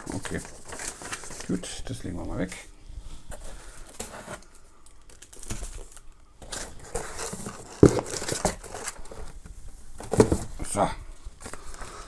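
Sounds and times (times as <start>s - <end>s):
cardboard box and paper rustling: 0.0s - 1.7s, 5.1s - 9.4s.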